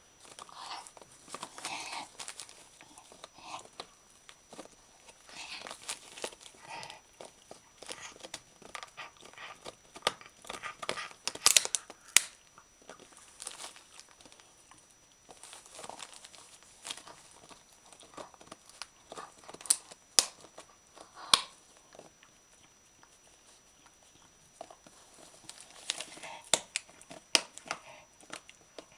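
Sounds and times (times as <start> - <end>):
dog chewing: 0.1 - 28.9
wrapping paper crinkling and tearing: 0.2 - 12.4, 13.0 - 14.5, 15.3 - 20.7, 24.9 - 28.4.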